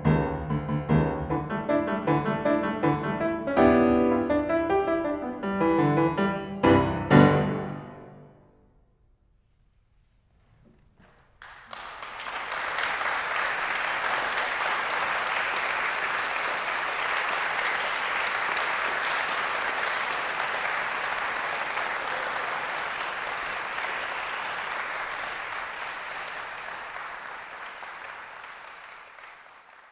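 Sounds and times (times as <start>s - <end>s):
audience applauding: 11.0s - 29.9s.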